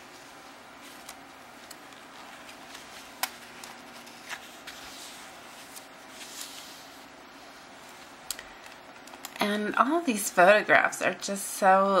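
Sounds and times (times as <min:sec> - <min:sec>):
faint room hum: 0:00.0 - 0:12.0
book pages turning: 0:00.1 - 0:09.4.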